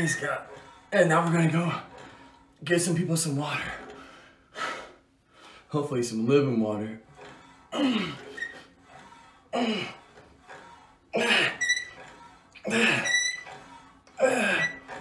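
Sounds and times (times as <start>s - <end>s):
man grunting with effort: 7.7s - 8.2s, 9.6s - 10.0s, 14.2s - 14.7s.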